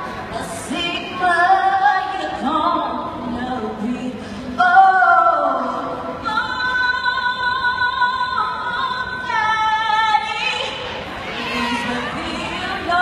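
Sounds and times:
women singing in harmony: 0:11.4 - 0:13.0.

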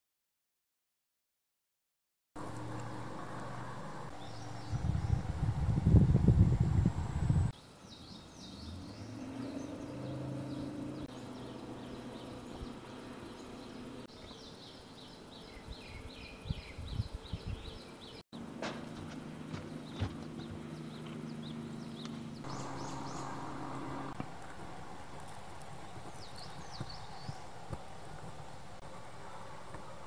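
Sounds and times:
small birds chirping: 0:02.4 - 0:18.2, 0:19.5 - 0:30.0
loud low rumble: 0:22.4 - 0:24.2.

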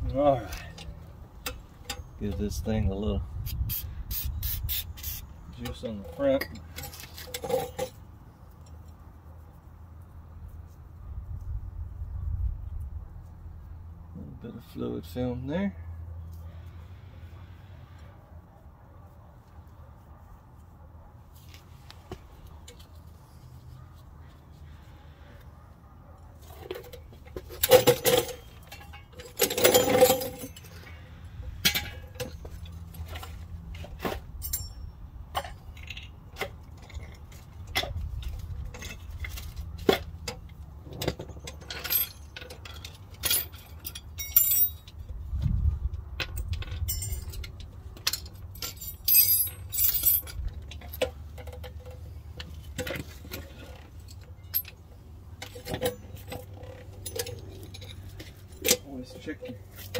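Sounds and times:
hand tools clinking and knocking: 0:00.1 - 0:02.9, 0:04.1 - 0:09.0, 0:26.4 - 0:45.3, 0:45.9 - 0:59.9.

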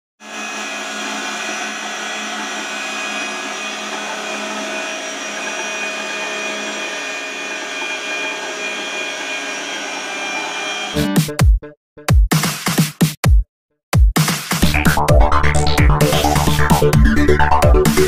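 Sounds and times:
pipe threading machine whine: 0:00.2 - 0:11.0.

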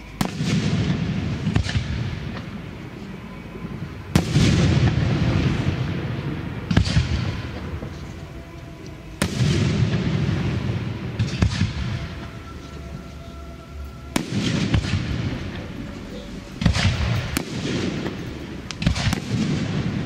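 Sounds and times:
firework shells booming: 0:00.0 - 0:12.6, 0:14.0 - 0:20.0
rolling echo: 0:00.0 - 0:20.0.

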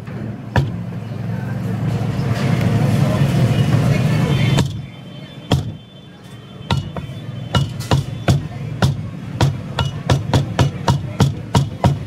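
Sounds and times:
cleaver chopping on wooden block: 0:00.6 - 0:00.8, 0:06.7 - 0:07.0, 0:07.6 - 0:12.0.

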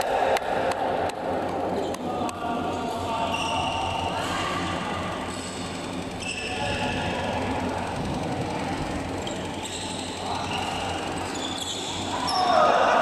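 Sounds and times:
busy badminton hall din: 0:00.0 - 0:13.0
low hum: 0:00.0 - 0:13.0
high shoe squeaks: 0:02.7 - 0:04.0, 0:05.3 - 0:06.8, 0:09.2 - 0:12.6.

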